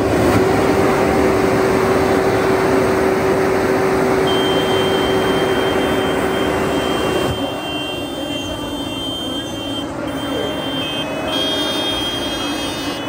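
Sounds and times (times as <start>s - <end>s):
tractor diesel engine running: 0.0s - 13.0s
thin high whistle: 4.3s - 13.0s.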